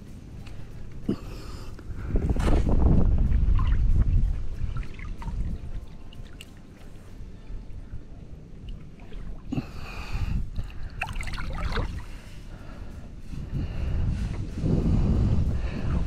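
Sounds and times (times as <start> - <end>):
wind rumble on microphone: 0.0 - 6.4, 7.1 - 16.0
water sloshing and splashing: 3.4 - 7.2, 8.2 - 12.5.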